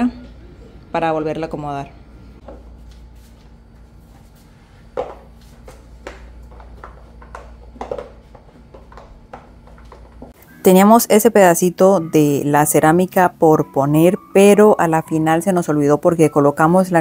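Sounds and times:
mop scuffing on tile floor: 2.4s - 10.4s.

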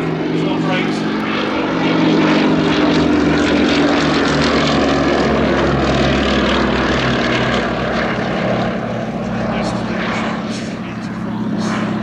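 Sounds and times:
propeller plane engine in flight: 0.0s - 12.0s.

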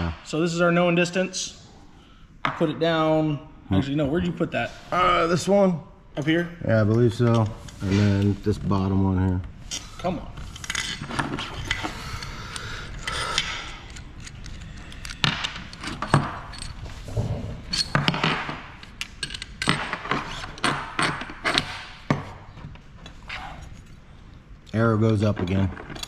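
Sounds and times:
metal tools clinking and knocking: 13.9s - 16.9s, 17.7s - 21.7s.

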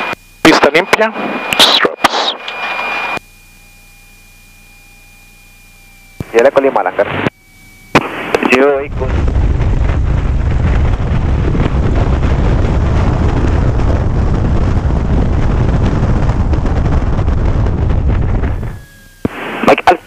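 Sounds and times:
propeller plane engine running: 3.2s - 19.3s
wind buffeting microphone: 8.8s - 19.3s.

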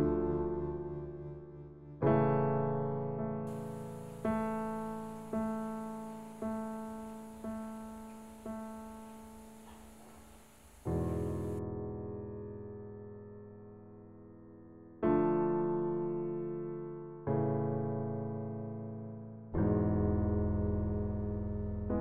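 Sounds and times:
slow piano music: 0.0s - 22.0s.

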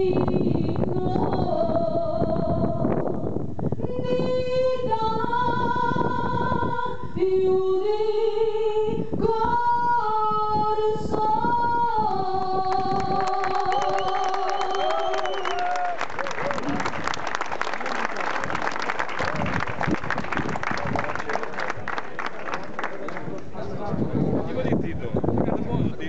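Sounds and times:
woman singing: 0.0s - 3.2s, 3.8s - 14.9s
hand clapping: 12.7s - 23.5s.

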